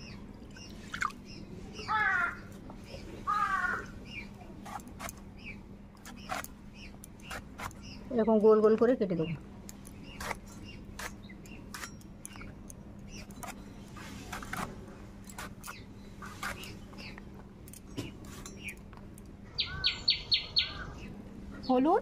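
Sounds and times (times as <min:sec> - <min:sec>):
bird chirping: 0:00.0 - 0:14.6, 0:19.5 - 0:21.9.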